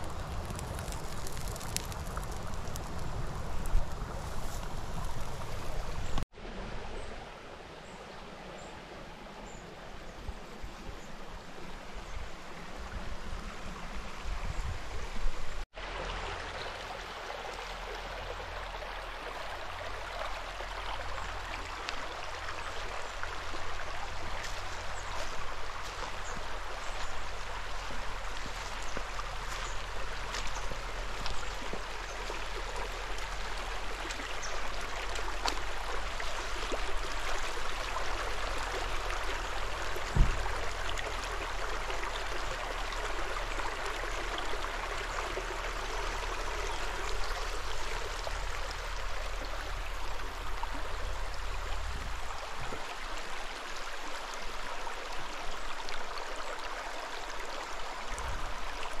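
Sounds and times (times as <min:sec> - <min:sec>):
brook babbling over rocks: 0:00.0 - 0:59.0
short thump: 0:40.1 - 0:40.4.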